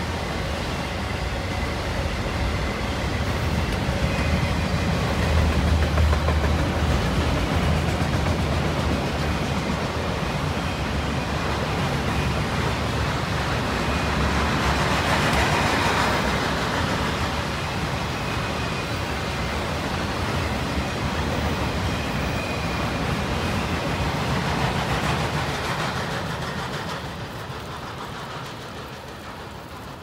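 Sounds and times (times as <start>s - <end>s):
freight train wheels rumbling on rails: 0.0s - 30.0s.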